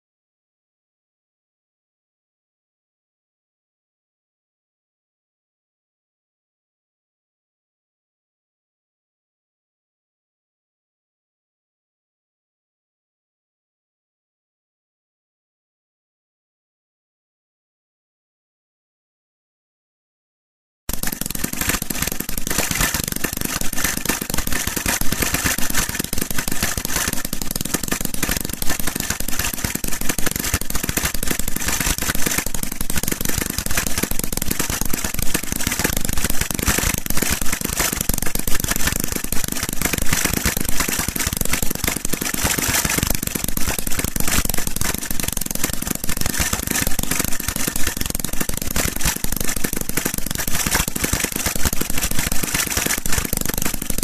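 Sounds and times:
pulse-jet engine popping: 0:20.9 - 0:54.0.

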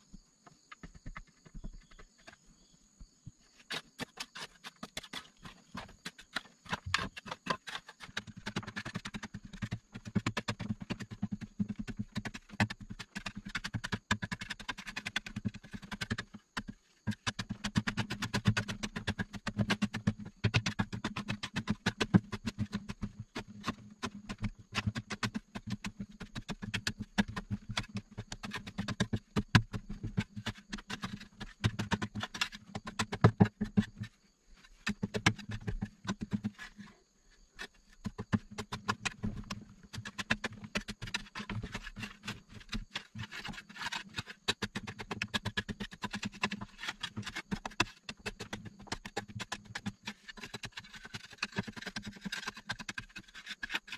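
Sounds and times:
digging tool scraping earth: 0:00.6 - 0:53.9
dirt crumbling and falling: 0:03.0 - 0:36.8.

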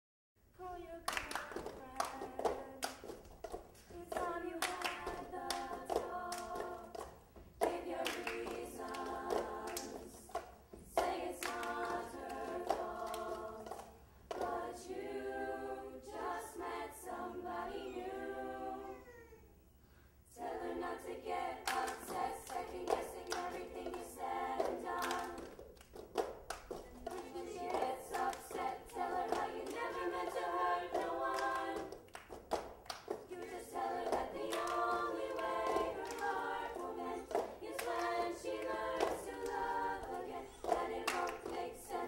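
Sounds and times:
hands clapping: 0:01.0 - 0:14.6, 0:21.6 - 0:42.0
choir singing in harmony: 0:01.3 - 0:03.1, 0:04.0 - 0:19.0, 0:20.2 - 0:25.6, 0:27.0 - 0:32.1, 0:33.2 - 0:42.0.

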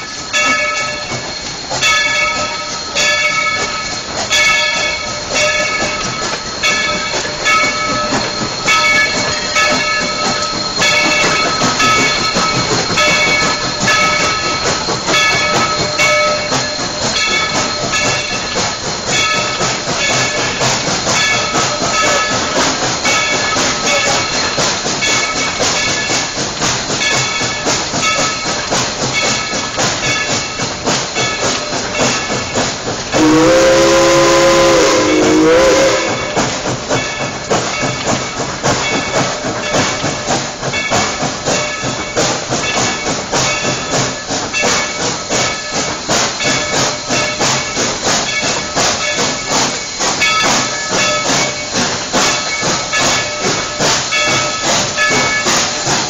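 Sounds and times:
steady hiss of steam: 0:00.0 - 0:56.0
steam locomotive exhaust beats: 0:00.0 - 0:56.0.

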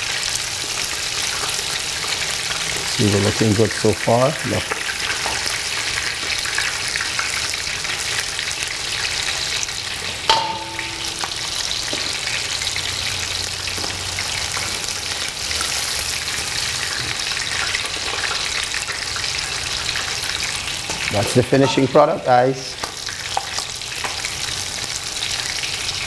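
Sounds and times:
chicken deep-frying in oil: 0:00.0 - 0:26.0
metallic clink: 0:10.3 - 0:11.7.

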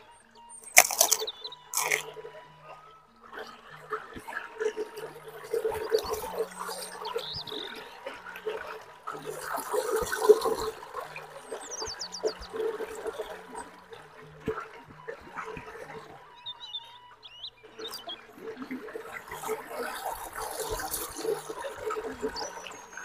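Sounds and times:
wet chewing and lip-smacking: 0:00.6 - 0:02.2.

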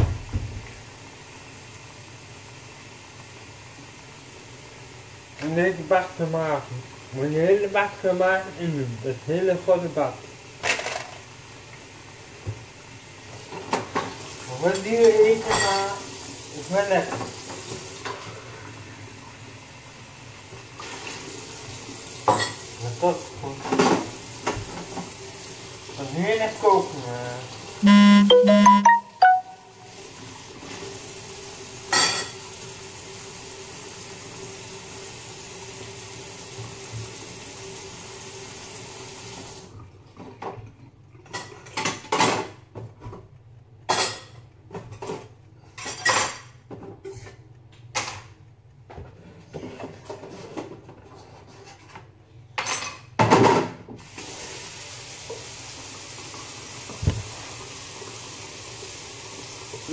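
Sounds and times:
water running from tap: 0:00.0 - 0:10.6, 0:11.2 - 0:27.8, 0:28.9 - 0:39.8, 0:54.0 - 0:59.9
pots and dishes clattering: 0:15.4 - 0:15.9.

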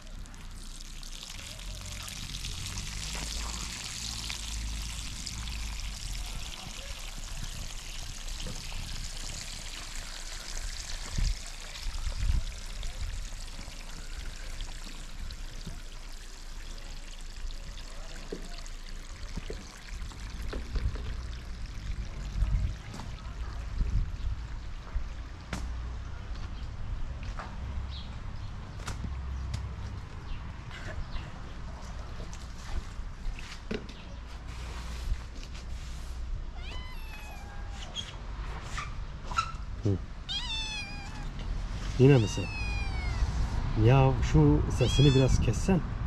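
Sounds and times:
water pouring in a rushing stream: 0:00.0 - 0:25.4.

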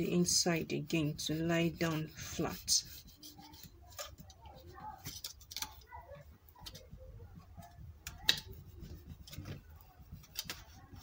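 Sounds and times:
bone folder scraping cardstock: 0:08.1 - 0:11.0.

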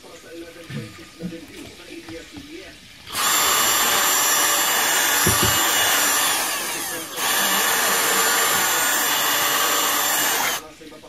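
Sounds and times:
cordless drill boring plastic: 0:03.0 - 0:10.7.

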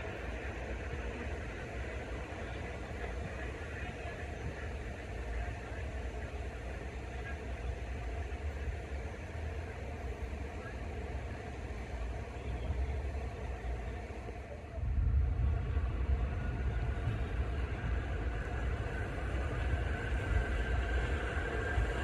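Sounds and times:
subway train rumbling: 0:00.0 - 0:22.0.

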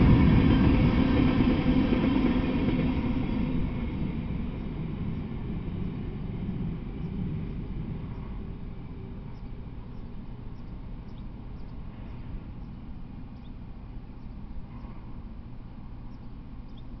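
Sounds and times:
low steady rumble: 0:00.0 - 0:17.0
small birds chirping: 0:04.5 - 0:17.0.

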